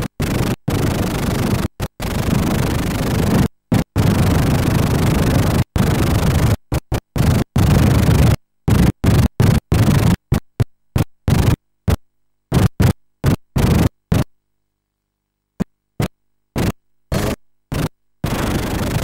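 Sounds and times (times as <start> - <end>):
harsh videotape noise bursts: 0.0 - 14.3, 16.0 - 19.0.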